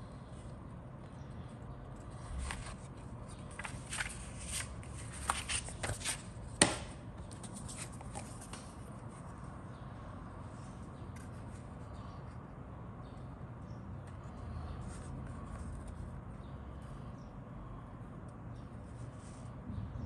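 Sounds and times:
paper rustling: 2.1s - 8.8s.

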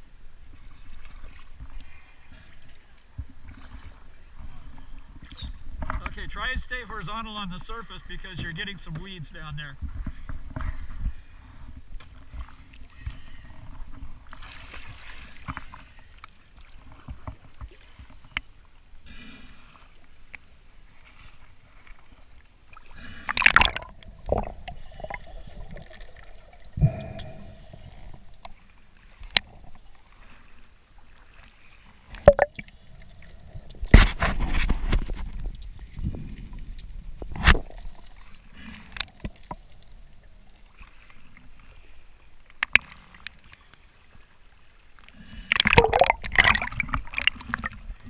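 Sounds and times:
water sloshing and gurgling: 0.0s - 48.0s
sharp splashes: 23.2s - 25.3s, 45.5s - 47.9s.

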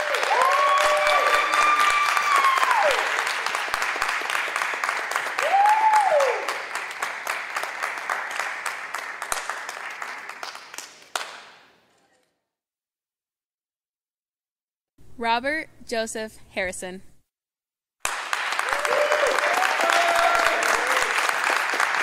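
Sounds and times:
whooping cheers: 0.0s - 3.3s, 5.4s - 6.6s, 18.6s - 21.4s
audience applauding: 0.0s - 11.6s, 18.0s - 22.0s.

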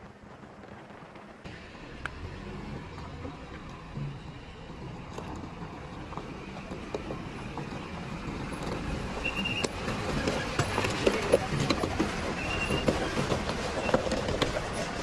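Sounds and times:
tyres crunching gravel: 0.0s - 15.0s
diesel truck engine running: 1.4s - 15.0s
high squeal: 9.1s - 11.3s, 12.2s - 14.9s.

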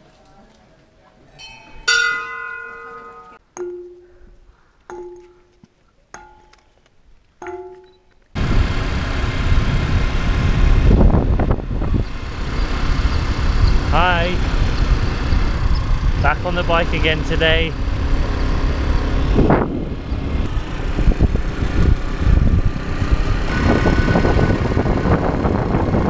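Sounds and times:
stone slab ringing when struck: 1.4s - 5.6s, 6.2s - 6.7s, 7.4s - 8.2s
wind rushing: 8.4s - 16.5s, 17.4s - 26.0s
motorbike engine: 8.4s - 26.0s.

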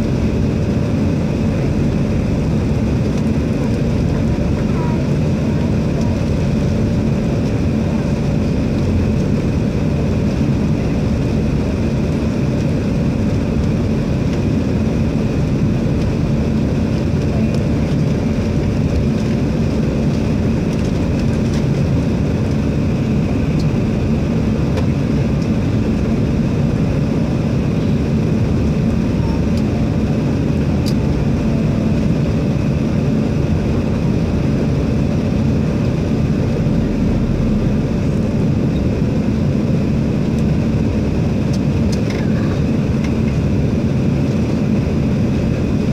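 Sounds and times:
airliner engine and airflow roar: 0.0s - 45.9s.

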